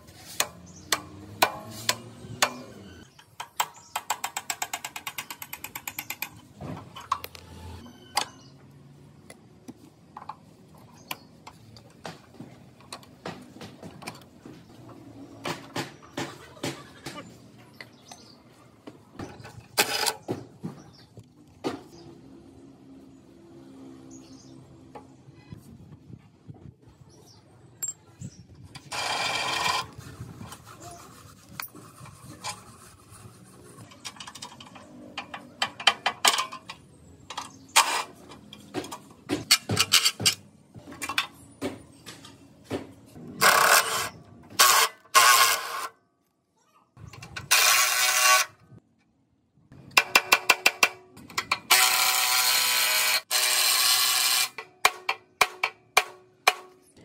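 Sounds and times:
steel parts clanking and clicking: 0:00.4 - 0:08.4, 0:33.8 - 0:45.9, 0:49.8 - 0:57.0
cordless impact wrench: 0:51.4 - 0:54.6.

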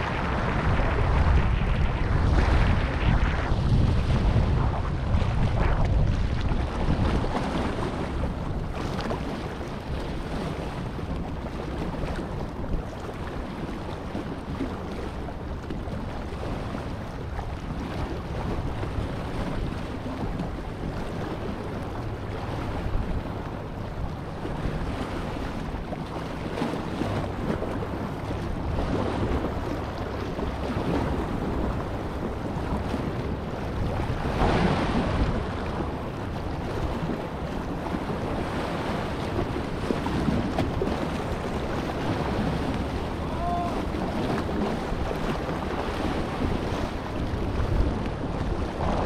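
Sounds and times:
wind buffeting microphone: 0:00.0 - 0:49.0
small waves splashing over rock: 0:24.4 - 0:49.0.

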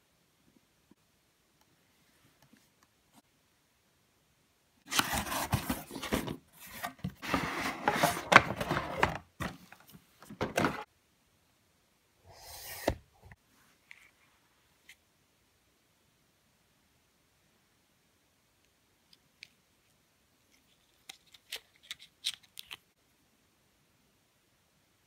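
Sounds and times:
cardboard packaging rustling and scraping: 0:04.9 - 0:10.9.

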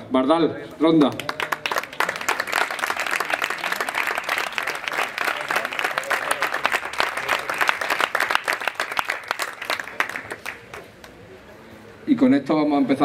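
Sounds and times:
crowd applauding: 0:01.0 - 0:11.2.

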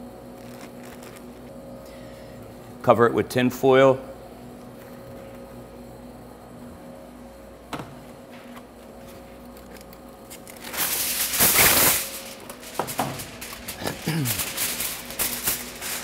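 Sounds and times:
aluminium foil crinkling: 0:00.3 - 0:01.6, 0:09.4 - 0:16.0.

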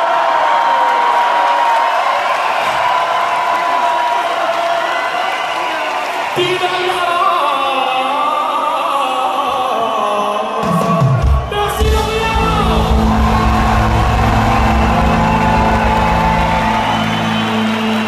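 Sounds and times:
person singing: 0:06.4 - 0:18.0
falling low bass sweep: 0:12.3 - 0:17.8.

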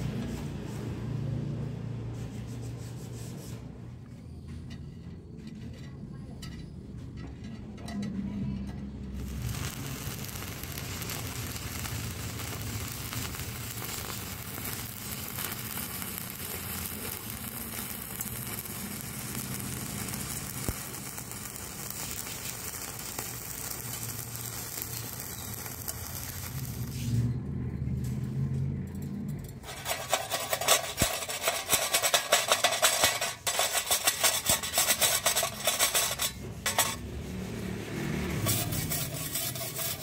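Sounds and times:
welding arc hissing and crackling: 0:09.1 - 0:27.2, 0:29.6 - 0:37.7, 0:38.3 - 0:40.0.

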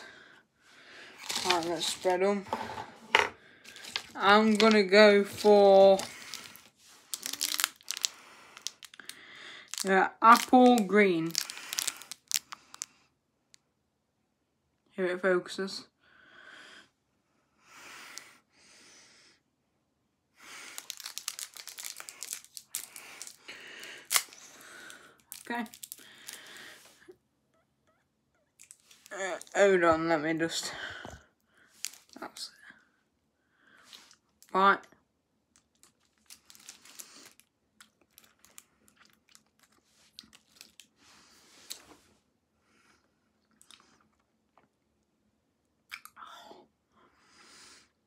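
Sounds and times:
candy wrapper tearing and crinkling: 0:01.2 - 0:02.2, 0:03.7 - 0:13.0, 0:20.5 - 0:26.8, 0:28.5 - 0:29.6, 0:31.8 - 0:32.3, 0:35.6 - 0:41.0.

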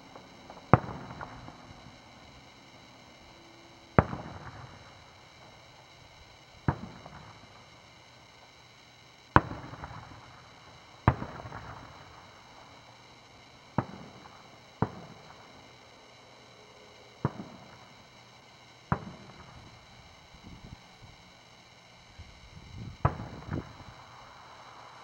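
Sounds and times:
fireworks bangs with echo: 0:00.0 - 0:07.8, 0:09.3 - 0:12.7, 0:13.7 - 0:15.8, 0:17.2 - 0:18.2, 0:18.8 - 0:20.0, 0:23.0 - 0:24.2.

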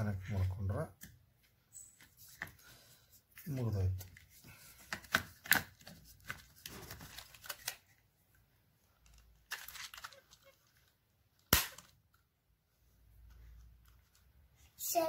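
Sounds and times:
small plastic clicks and rustling: 0:08.9 - 0:12.3
plastic cover snapping shut: 0:11.4 - 0:12.0.

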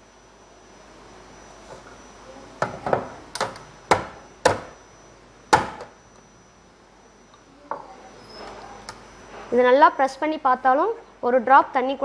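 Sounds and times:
knocks on a tabletop: 0:02.6 - 0:04.7.

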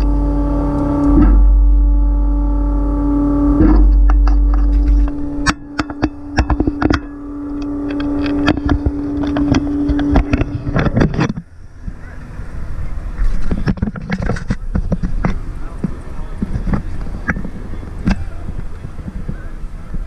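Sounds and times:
car engine idling: 0:00.0 - 0:20.0
sharp knocks and clicks: 0:03.6 - 0:12.0, 0:13.4 - 0:20.0.

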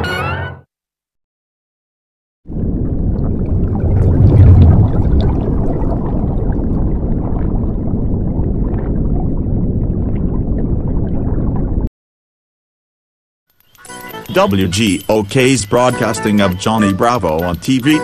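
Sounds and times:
underwater bubbling: 0:02.5 - 0:11.9.

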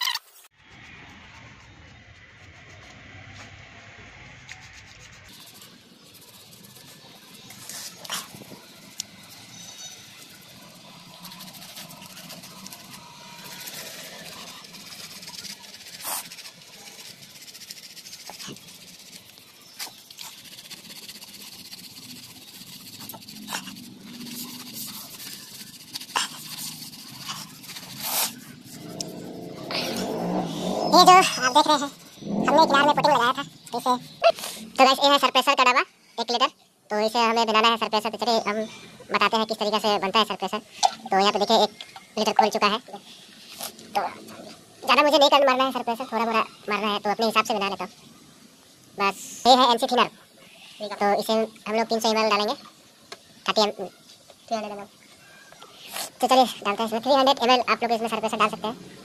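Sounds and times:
sandpaper rubbing on metal: 0:04.5 - 0:33.4.

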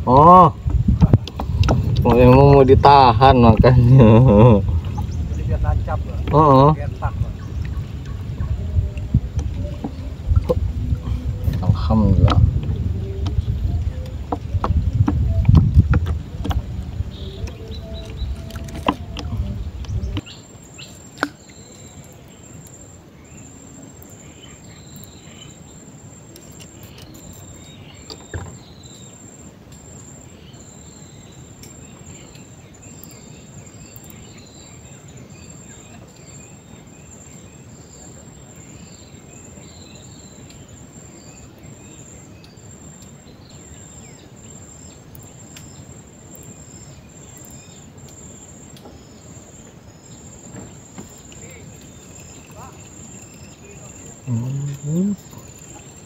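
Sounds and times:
loud low rumbling noise: 0:00.0 - 0:20.2
insect chirps: 0:00.0 - 0:56.0
insects trilling: 0:00.0 - 0:56.0.

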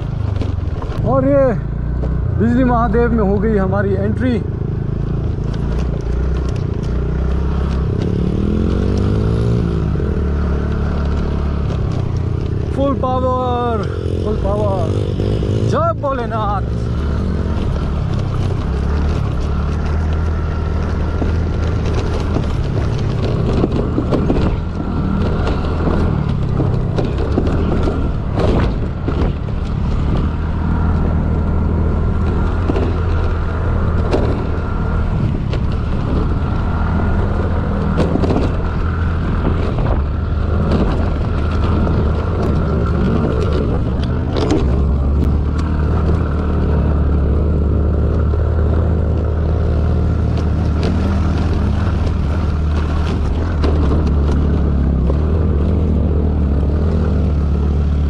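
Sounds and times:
knocks over bumps: 0:17.6 - 0:47.3, 0:48.0 - 0:58.0.

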